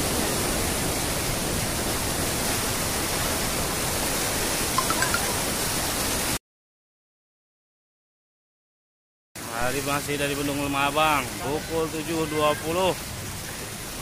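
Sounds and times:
floodwater rushing over weir: 0.0s - 6.4s, 9.4s - 14.0s.

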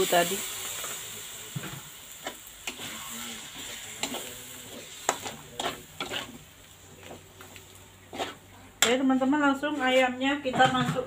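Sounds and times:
paste sizzling in wok: 0.0s - 10.2s
metal spatula scraping pan: 2.2s - 6.5s, 8.0s - 9.0s.

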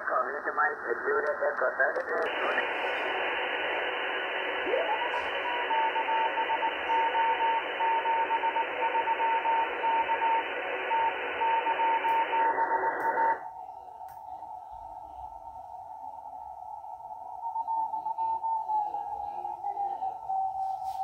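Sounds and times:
radio band hiss: 0.0s - 13.5s
morse code beeps: 4.9s - 13.4s.

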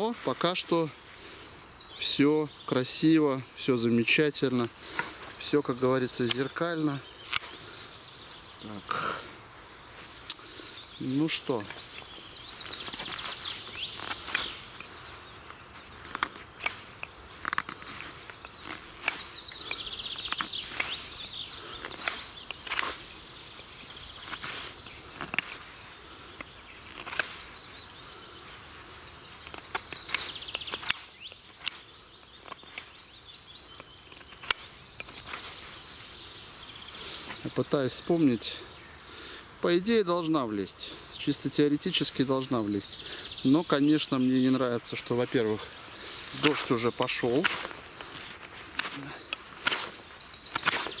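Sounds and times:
knife scraping wood: 15.7s - 23.2s, 26.4s - 27.4s, 48.7s - 51.0s
clicks of knife cuts: 48.7s - 51.0s.

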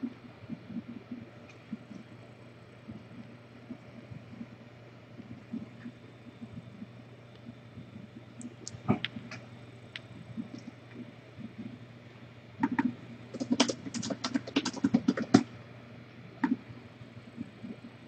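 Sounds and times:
low steady hum: 0.0s - 18.0s
keyboard typing clicks: 12.6s - 15.5s.

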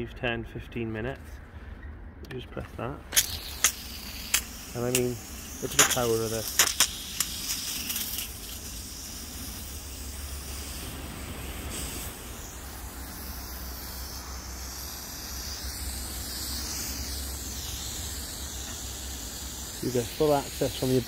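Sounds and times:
hose water jet hissing: 3.1s - 21.0s.

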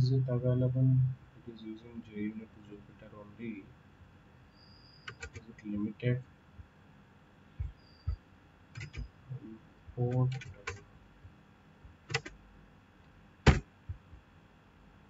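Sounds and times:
computer keyboard keystrokes: 5.1s - 5.4s, 8.8s - 9.1s, 10.1s - 10.8s, 11.9s - 12.4s.

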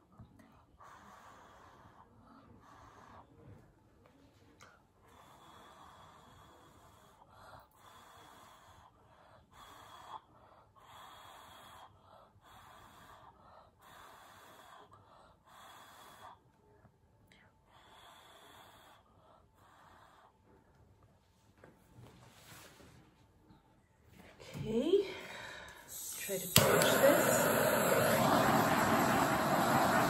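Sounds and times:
puffs of breath blowing: 25.2s - 30.0s.

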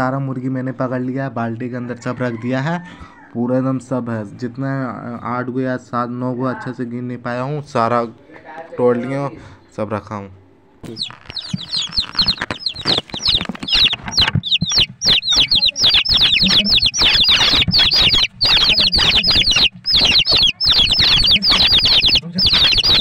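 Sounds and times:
birds scuffling against plastic bucket: 10.8s - 23.0s
chicks peeping: 10.8s - 23.0s.

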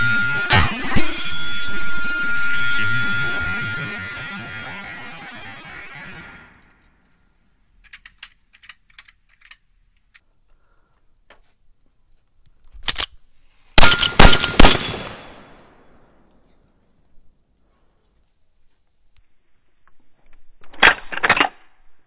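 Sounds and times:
faint rifle clicks: 7.8s - 10.4s
rifle action clack: 12.8s - 13.2s
rifle shots with booming echo: 13.8s - 15.8s.

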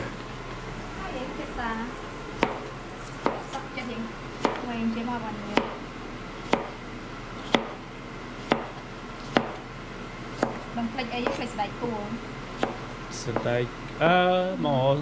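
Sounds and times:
knife chopping on plastic board: 2.4s - 3.6s, 4.4s - 4.7s, 5.5s - 5.8s, 6.4s - 6.8s, 7.4s - 7.8s, 8.4s - 9.6s, 10.3s - 11.4s, 12.5s - 13.5s.

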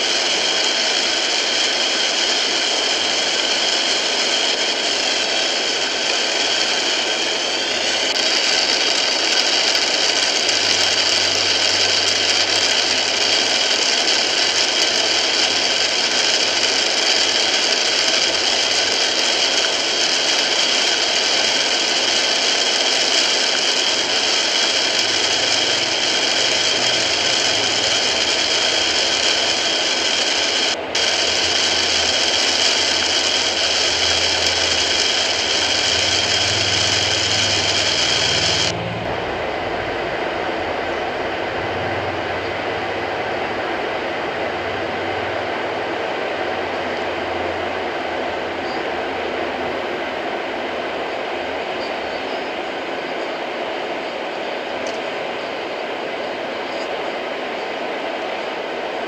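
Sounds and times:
heavy rain on car windshield: 8.3s - 38.8s
low engine hum: 38.3s - 45.6s.

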